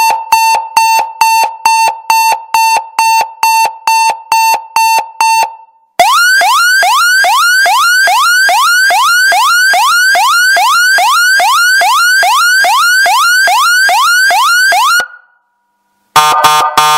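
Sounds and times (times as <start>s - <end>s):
electronic whooping alarm siren: 6.0s - 15.3s, 16.2s - 16.9s.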